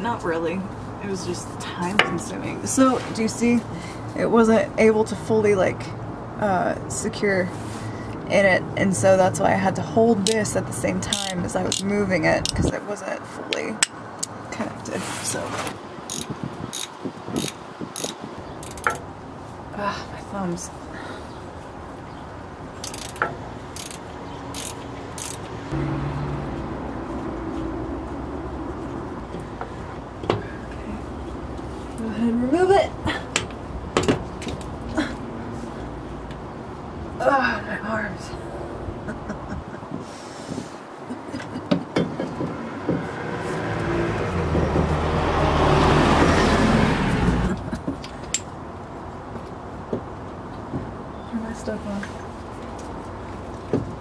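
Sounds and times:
ratchet wrench clicking: 11.1 - 12.6, 16.1 - 19.0, 22.8 - 25.5
vehicle driving past: 25.1 - 29.6, 42.5 - 47.6.

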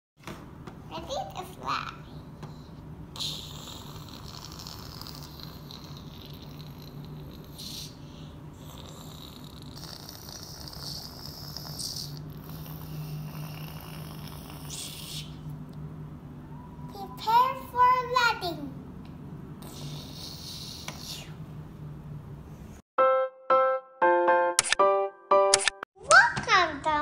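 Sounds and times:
boy making whooshing mouth noises: 3.2 - 8.1, 9.7 - 15.6, 19.6 - 21.4.

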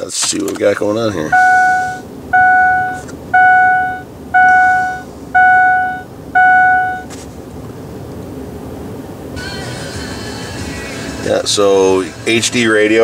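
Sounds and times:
dashboard warning chime: 1.3 - 7.1.

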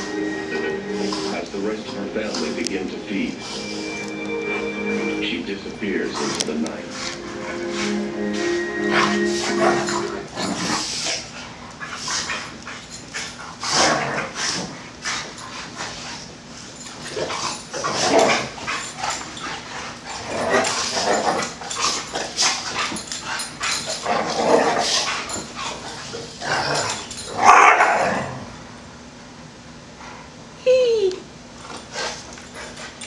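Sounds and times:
dogs growling: 6.0 - 28.8.

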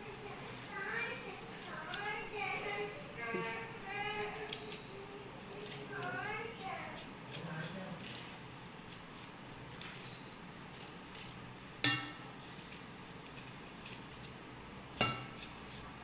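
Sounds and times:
knife scraping onion skin: 0.4 - 0.8, 1.5 - 11.5, 12.4 - 14.4, 15.0 - 16.0
metal kitchenware clink: 11.8 - 12.2.

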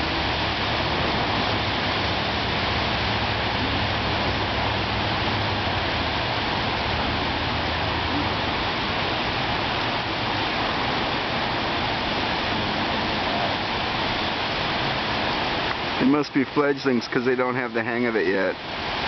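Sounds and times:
surf washing up a beach: 0.0 - 19.0.

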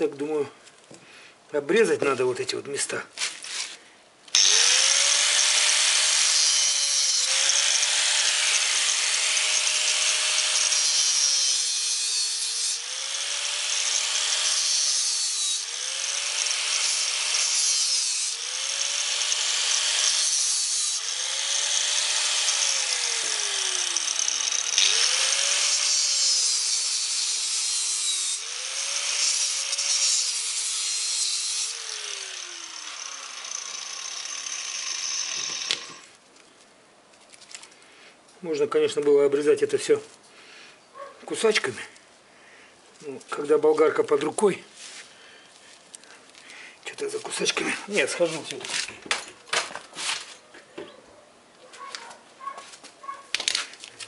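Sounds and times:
angle grinder cutting metal: 4.3 - 36.1
grinder disc spinning down: 31.9 - 36.0.

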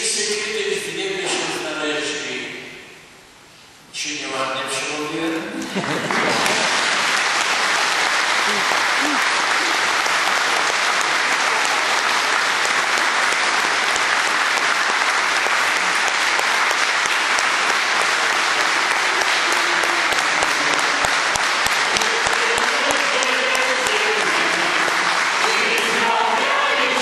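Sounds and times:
crowd applauding: 5.6 - 27.0.

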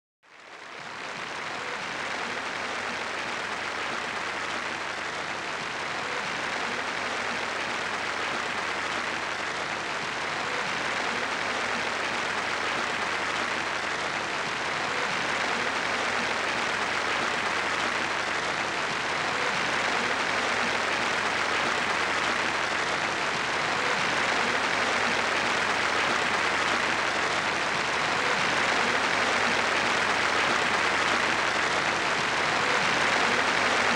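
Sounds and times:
audience applauding: 0.3 - 33.9.

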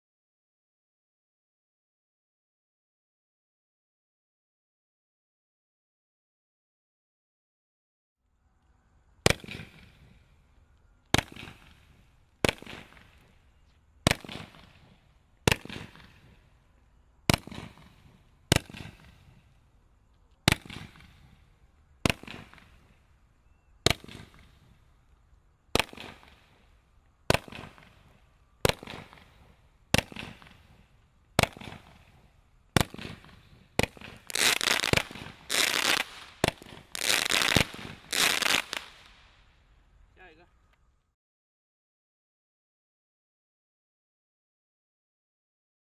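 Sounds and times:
crackling tail of sparks: 8.4 - 40.3
firework mines firing: 11.1 - 13.4, 14.0 - 16.5, 25.7 - 39.4.

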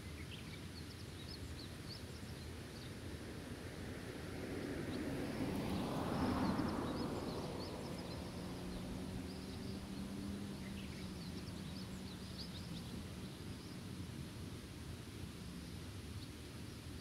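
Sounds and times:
small birds chirping: 6.2 - 14.1.

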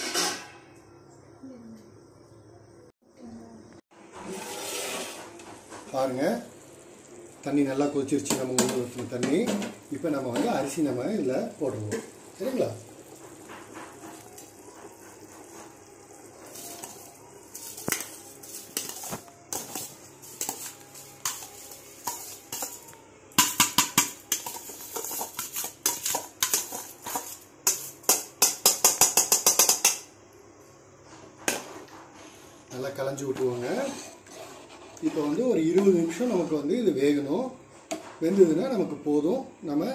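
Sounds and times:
metal clinking and scraping on pot: 0.0 - 0.6, 8.2 - 30.0, 33.2 - 36.6.

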